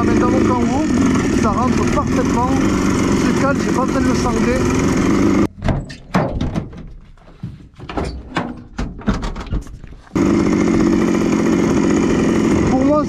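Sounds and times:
two-stroke engine running: 0:00.0 - 0:05.5, 0:10.1 - 0:13.0
knocks in metal cargo area: 0:05.5 - 0:09.8.

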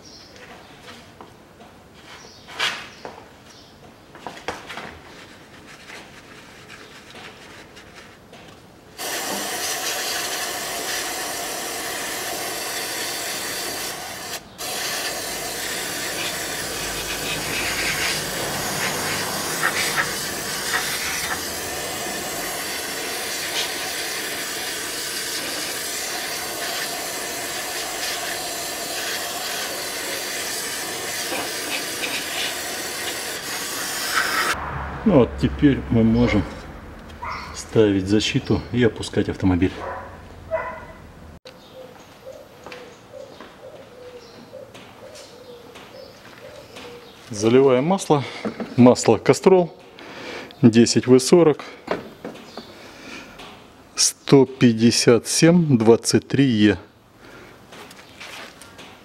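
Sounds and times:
aerosol spray hissing: 0:09.0 - 0:34.6.

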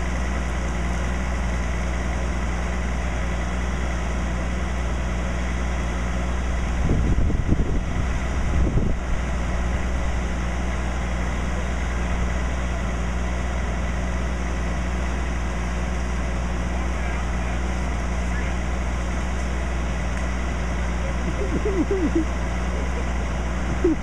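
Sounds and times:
fire engine idling: 0:00.0 - 0:24.0
irregular low rumble: 0:18.1 - 0:24.0.

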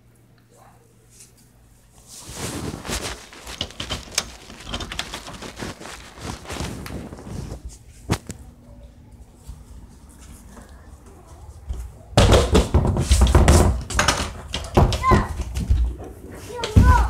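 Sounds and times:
footsteps: 0:02.0 - 0:08.5.

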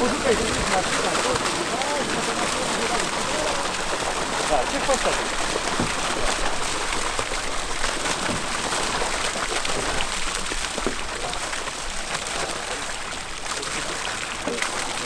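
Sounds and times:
water splashing into lake: 0:00.0 - 0:15.0.

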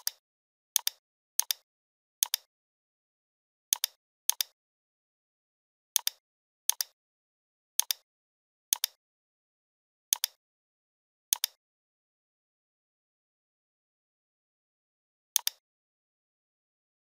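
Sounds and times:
computer mouse clicks: 0:00.0 - 0:00.2, 0:00.8 - 0:01.6, 0:02.2 - 0:02.5, 0:03.7 - 0:04.6, 0:06.0 - 0:07.0, 0:07.8 - 0:08.0, 0:08.7 - 0:09.0, 0:10.1 - 0:10.4, 0:11.3 - 0:11.6, 0:15.4 - 0:15.6.

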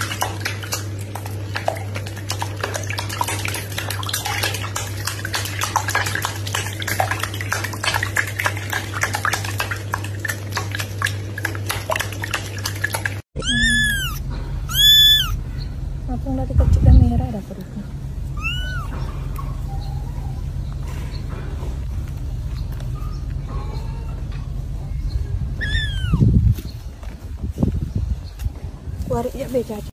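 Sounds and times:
kitten meowing: 0:13.4 - 0:15.4, 0:18.4 - 0:19.0, 0:25.6 - 0:26.3
steady low hum: 0:13.4 - 0:29.0.

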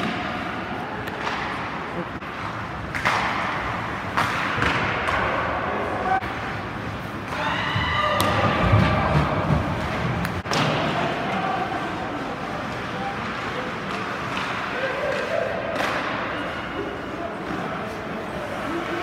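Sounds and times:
ice rink din: 0:00.0 - 0:19.0
puck and sticks knocking boards: 0:02.8 - 0:05.4, 0:08.1 - 0:11.4.

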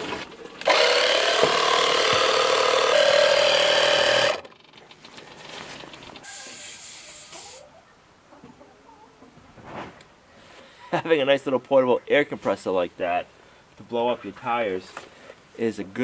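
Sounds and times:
small air compressor running: 0:00.6 - 0:04.7, 0:06.2 - 0:07.6.

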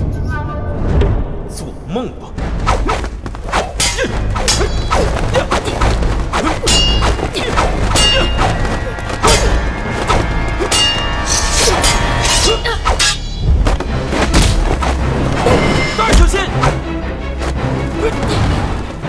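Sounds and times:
sword blades clanging: 0:03.8 - 0:05.1, 0:06.6 - 0:13.5.

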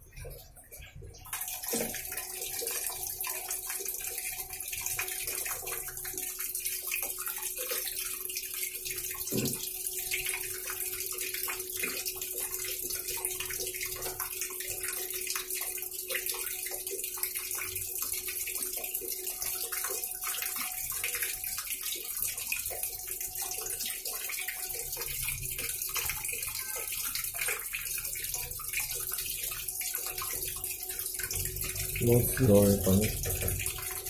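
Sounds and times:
water pouring and splashing into drum: 0:00.0 - 0:34.0.

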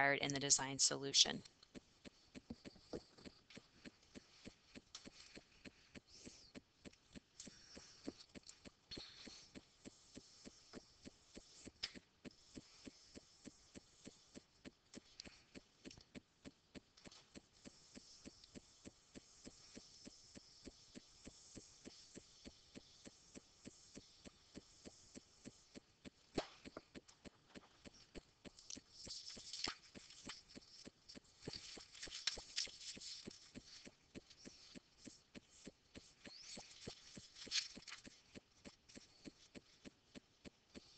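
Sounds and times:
quick regular ticking: 0:00.0 - 0:40.9.

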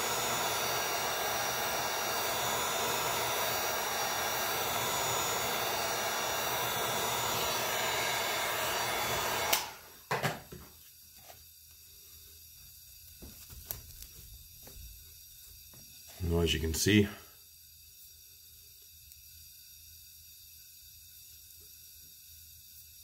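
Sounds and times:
heat gun blowing: 0:00.0 - 0:10.2.

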